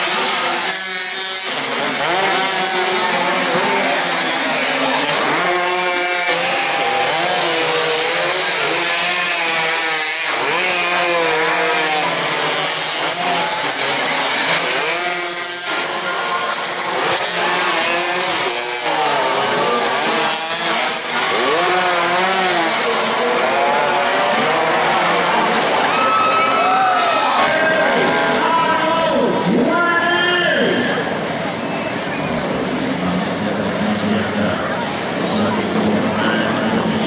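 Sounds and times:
racing motorcycles revving past: 0.0 - 26.4.

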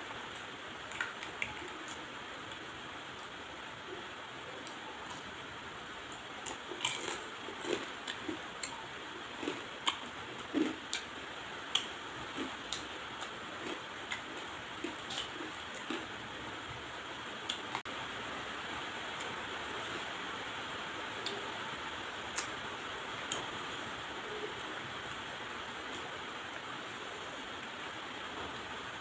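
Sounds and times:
steady background hiss: 0.0 - 29.0
chewing and lip-smacking: 9.4 - 11.1.

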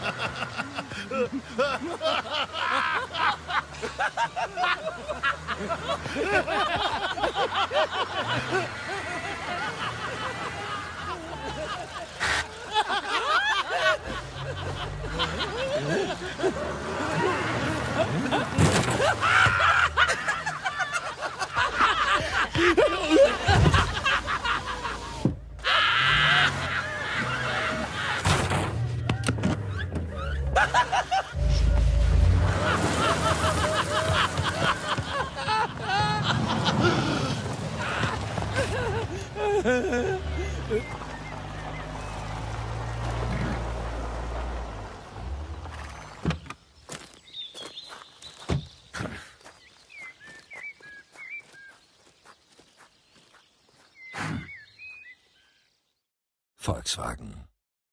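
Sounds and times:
loud drawn-out laugh: 0.0 - 28.6, 30.1 - 41.4
vehicle rolling over gravel: 13.8 - 48.8
voices snickering and chuckling: 32.5 - 41.5
bird chirps: 45.8 - 56.0.

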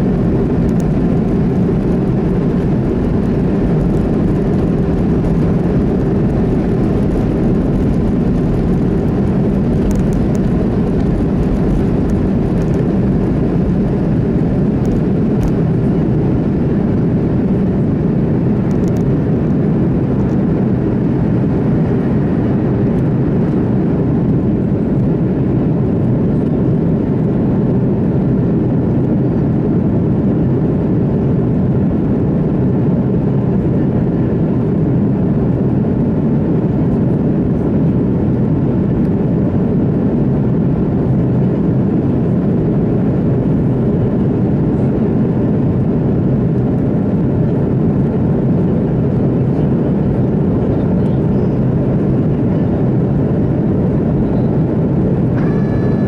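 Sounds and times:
jet engines at takeoff thrust: 0.0 - 56.0
runway rumble: 0.0 - 56.0.

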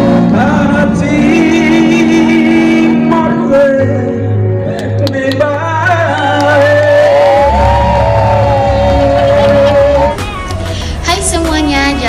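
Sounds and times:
man singing into a microphone: 0.0 - 10.2
sustained keyboard chords: 0.0 - 12.0
low bass note: 7.3 - 10.4.

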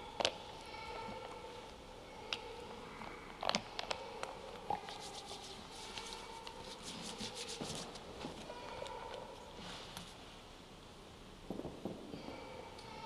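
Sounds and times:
faint steady hum: 0.0 - 13.0
cloth rustling: 4.8 - 8.5, 9.6 - 10.4.

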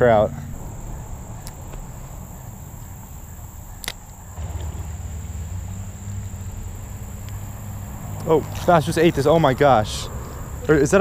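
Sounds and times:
high insect drone: 0.0 - 11.0
fishing reel cranking rumble: 4.3 - 9.8.

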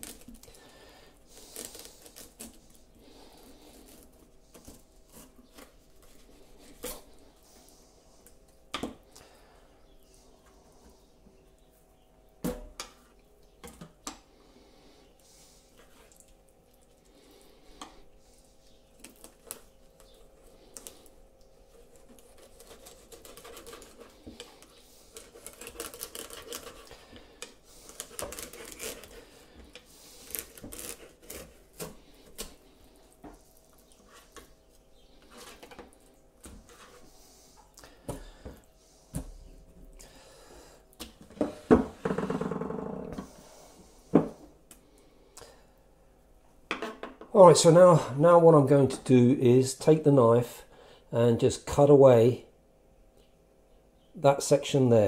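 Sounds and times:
knife slicing and scraping fish: 21.6 - 34.6.

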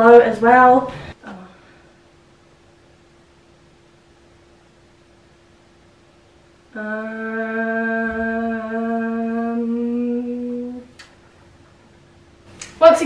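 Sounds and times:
woman humming: 1.2 - 1.6, 6.7 - 11.1.

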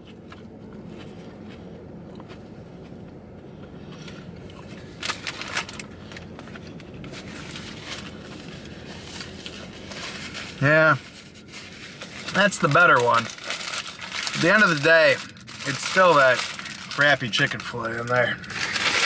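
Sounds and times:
person chewing crispy food: 0.0 - 10.4
low steady hum: 0.0 - 19.0.

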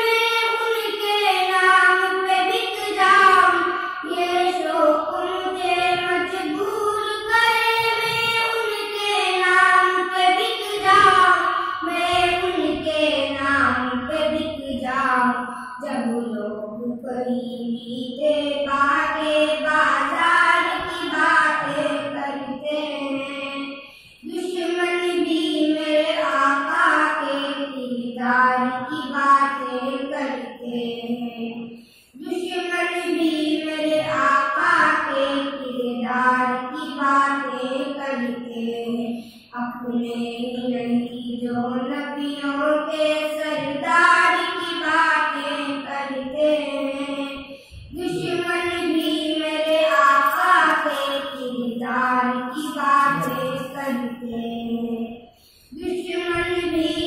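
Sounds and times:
boy singing devotional song: 0.0 - 57.0
boys singing: 20.8 - 22.2, 34.0 - 34.2, 43.4 - 44.0, 47.9 - 51.1, 51.8 - 55.1.

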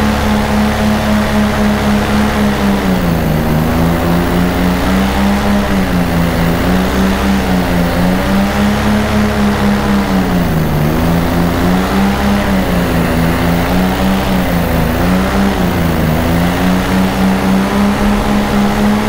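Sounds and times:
paramotor engine and propeller: 0.0 - 19.0.

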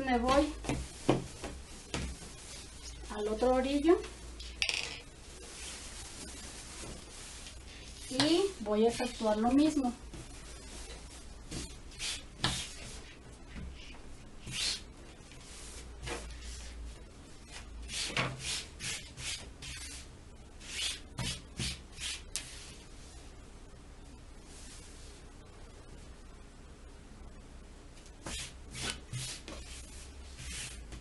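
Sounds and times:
fabric rustling swishes: 0.2 - 4.0, 5.2 - 11.8.

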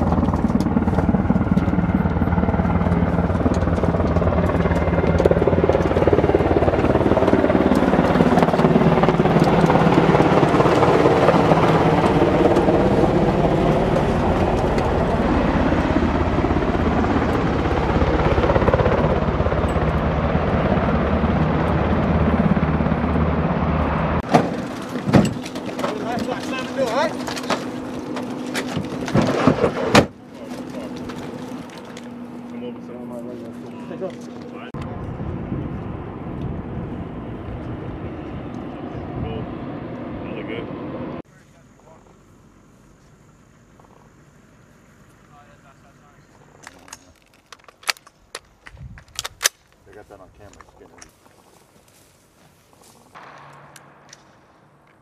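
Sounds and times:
helicopter engine and rotor: 0.0 - 29.3, 30.1 - 42.6.

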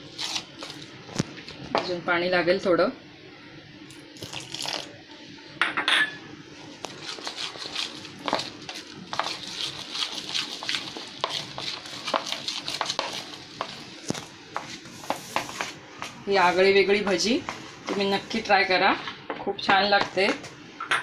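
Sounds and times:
metal spoon stirring batter: 6.9 - 13.9.

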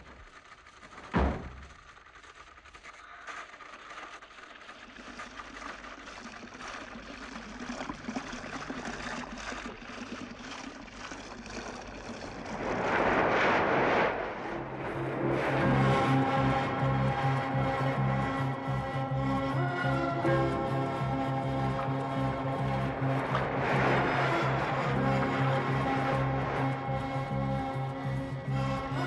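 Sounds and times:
door shutting: 1.0 - 1.8
sea surf and breaking wave: 11.8 - 29.0.

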